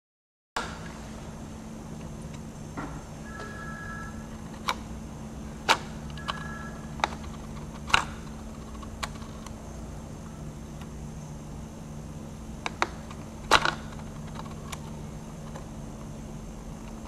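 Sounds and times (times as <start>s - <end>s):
steady low hum: 0.6s - 17.0s
machine mechanism clicking: 5.6s - 9.6s.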